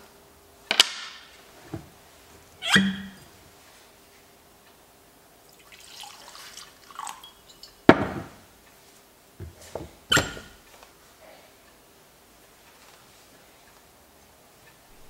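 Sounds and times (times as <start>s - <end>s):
glass clink: 2.7s - 3.3s, 6.9s - 8.3s
liquid pouring from bottle: 5.6s - 7.8s
bottle knocking on wood: 7.9s - 8.4s.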